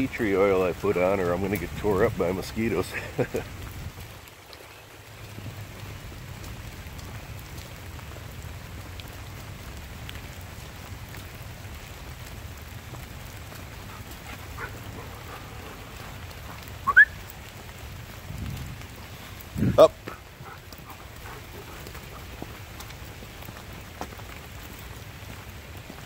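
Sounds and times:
rain on leaves: 0.0s - 26.0s
faint drips: 0.1s - 26.0s.

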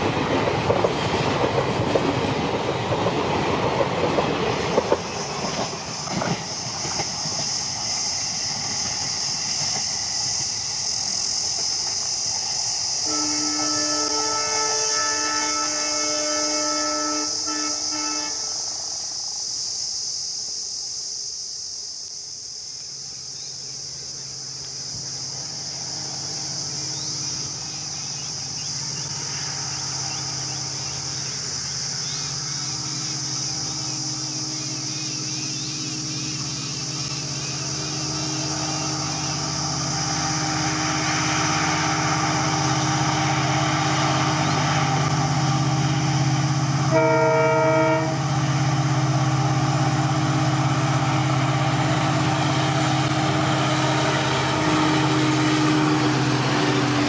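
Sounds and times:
high hiss: 0.0s - 57.0s
locomotive horn: 13.0s - 18.7s, 40.9s - 49.2s, 50.6s - 57.0s
diesel engine drone: 26.1s - 57.0s.

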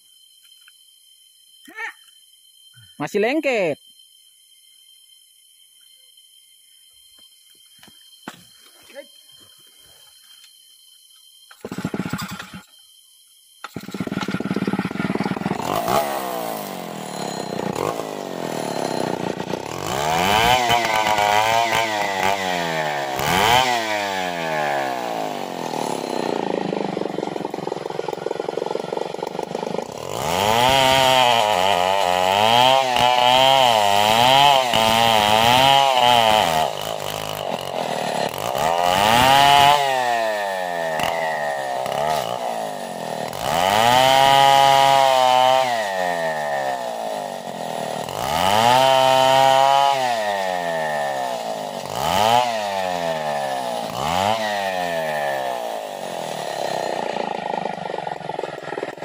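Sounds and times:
chainsaw cutting wood: 11.5s - 12.8s, 13.6s - 59.0s.

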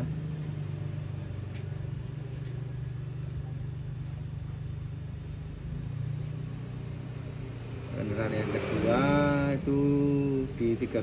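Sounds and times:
low mechanical hum: 0.0s - 8.0s.

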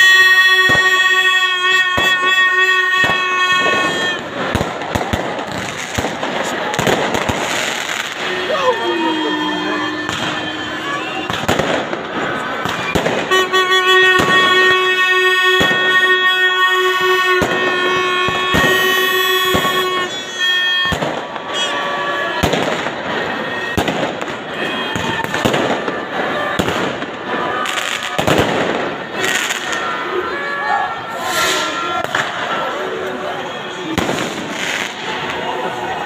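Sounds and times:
held horn note: 0.0s - 4.6s, 6.7s - 23.9s
crowd voices and cheering: 0.0s - 36.0s
firecrackers banging: 0.0s - 36.0s.

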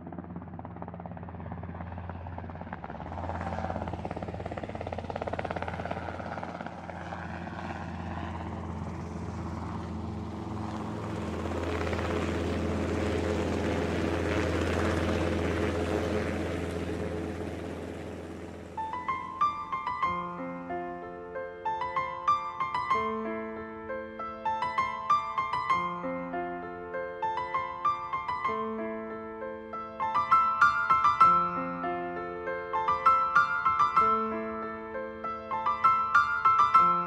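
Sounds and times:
drone propellers buzzing: 2.3s - 20.2s.

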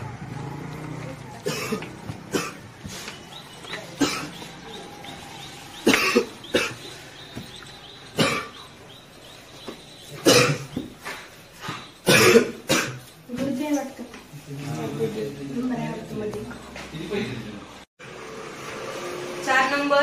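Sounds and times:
young man coughing: 1.4s - 2.6s, 4.0s - 4.4s, 5.8s - 6.9s, 8.2s - 8.6s, 10.2s - 10.8s, 12.0s - 13.1s.

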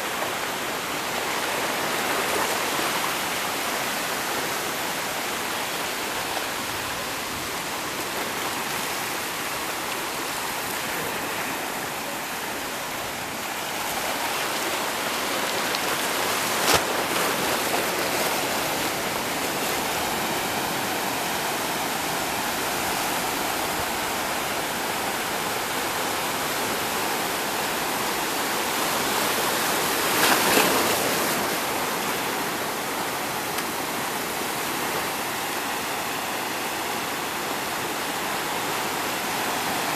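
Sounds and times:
surf breaking on rocks: 8.8s - 24.4s.

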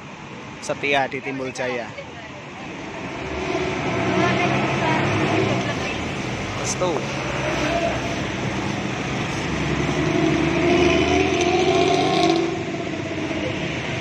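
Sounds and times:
wet tyres on road: 0.0s - 14.0s
coach engine accelerating: 2.5s - 14.0s
rain hissing: 2.7s - 13.9s.

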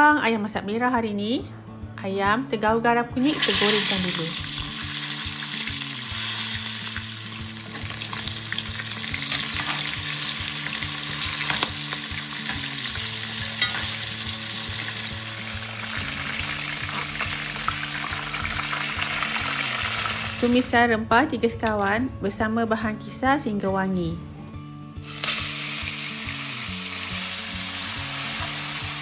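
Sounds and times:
chicken sizzling in hot oil: 3.2s - 20.5s, 25.0s - 29.0s.

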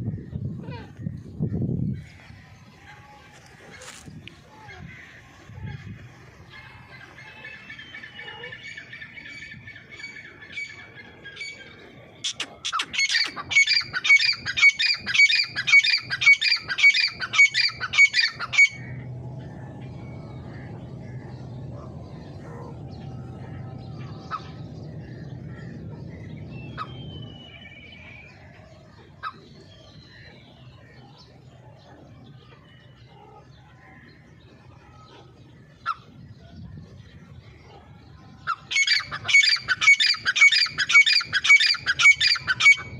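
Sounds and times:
steady low hum: 14.4s - 42.9s.

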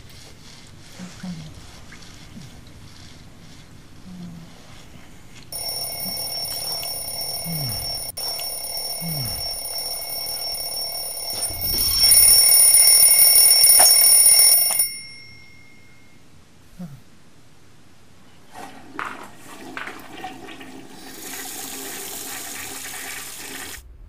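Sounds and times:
alarm clock ringing: 5.5s - 16.2s.

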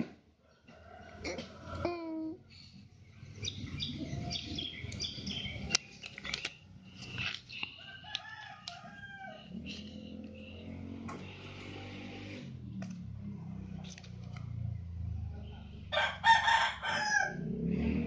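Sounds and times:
birds chirping: 2.8s - 12.5s.

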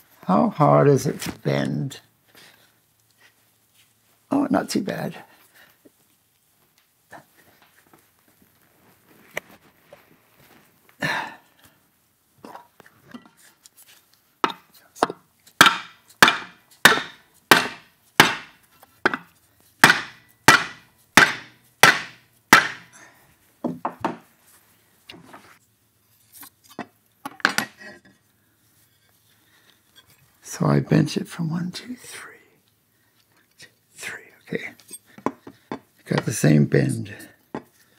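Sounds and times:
hammer striking metal strip: 14.4s - 22.9s.

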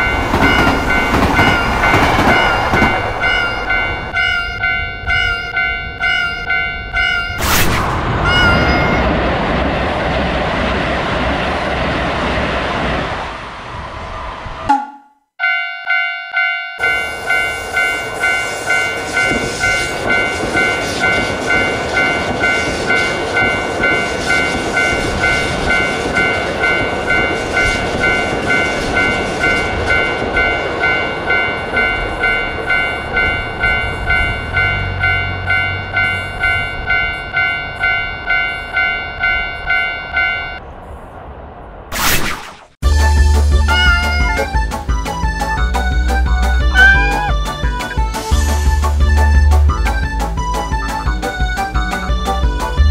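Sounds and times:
level-crossing warning bell: 0.0s - 7.4s, 14.7s - 40.6s, 43.7s - 48.7s
train rolling past: 0.0s - 14.9s, 16.8s - 41.9s, 42.8s - 52.9s
electric train passing: 0.0s - 41.9s, 42.9s - 52.9s.

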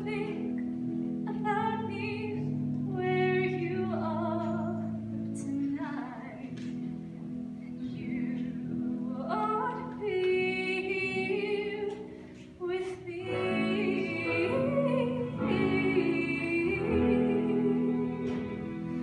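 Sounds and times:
instrumental accompaniment: 0.0s - 19.0s
women singing in harmony: 8.2s - 19.0s.

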